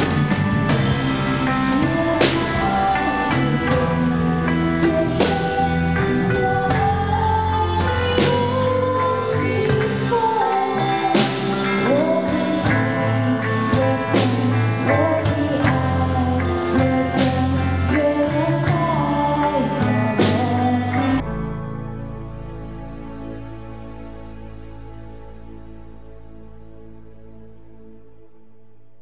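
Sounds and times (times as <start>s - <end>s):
drum kit: 0.0s - 21.2s
electric guitars: 0.0s - 28.7s
woman singing: 1.0s - 21.2s.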